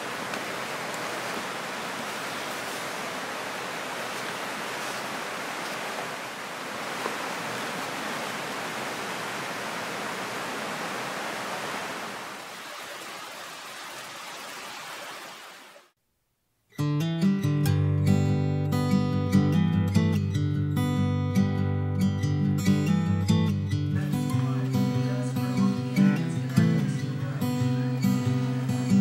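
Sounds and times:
steady rain falling: 0.0s - 15.9s.

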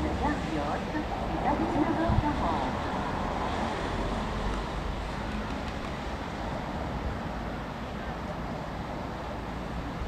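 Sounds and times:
street noise: 0.0s - 10.0s
tram rumbling: 0.0s - 10.0s.

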